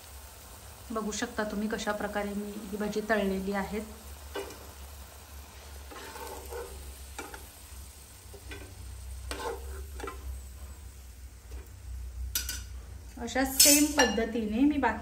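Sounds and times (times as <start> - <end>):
fritters sizzling in hot oil: 0.0 - 15.0
metal spatula scraping pan: 5.6 - 7.5, 8.3 - 10.3.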